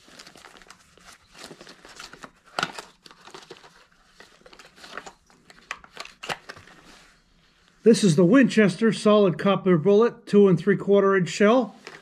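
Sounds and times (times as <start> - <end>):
cardboard box crinkling: 0.0 - 6.9.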